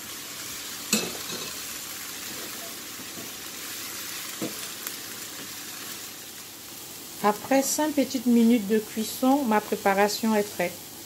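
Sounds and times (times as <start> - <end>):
vegetables sizzling in frying pan: 0.0 - 11.0.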